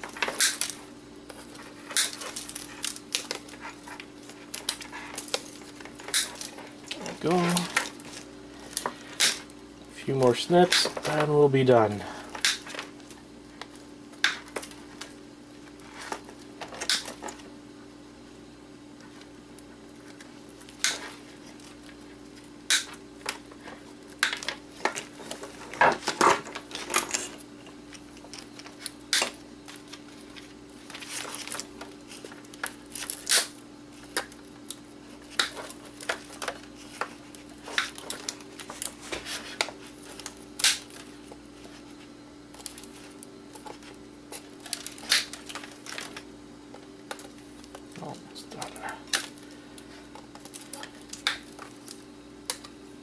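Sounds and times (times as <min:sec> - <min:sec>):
wire cutters snipping: 0:00.0 - 0:03.5, 0:16.8 - 0:17.2
steady low hum: 0:00.0 - 0:53.0.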